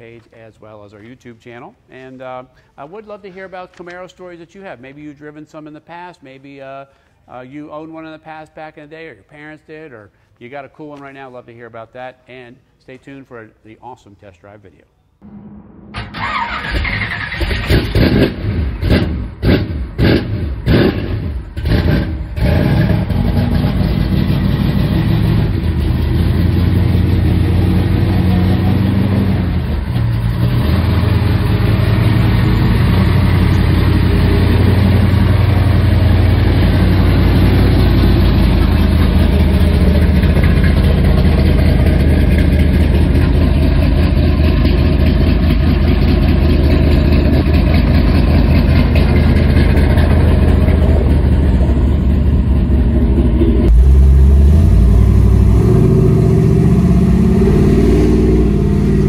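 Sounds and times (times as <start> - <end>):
car engine idling and revving: 16.2 - 59.0.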